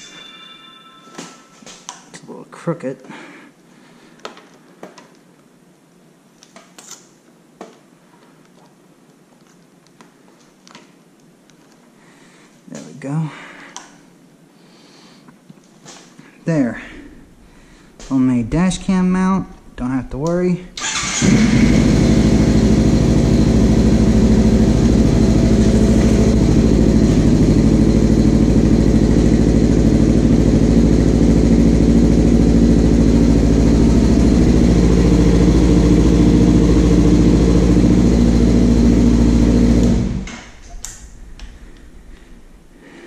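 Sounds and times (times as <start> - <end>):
motorcycle engine idling: 20.8 - 40.3.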